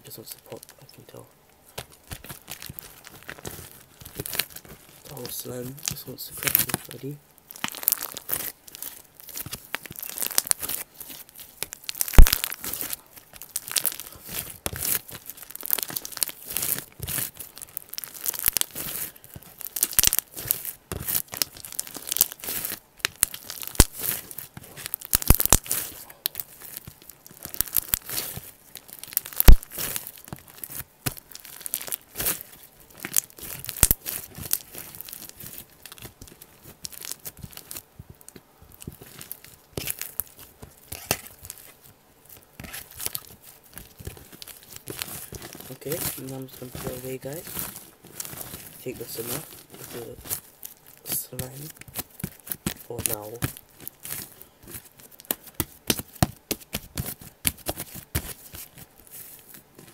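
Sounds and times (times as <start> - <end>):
slime crackling and popping: 0.0 - 59.9
loud slime pops: 12.0 - 13.0, 25.1 - 25.9, 29.2 - 30.0.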